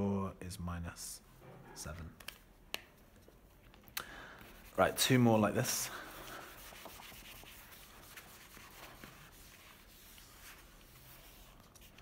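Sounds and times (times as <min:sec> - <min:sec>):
eraser rubbing on whiteboard: 0:06.1 - 0:12.0.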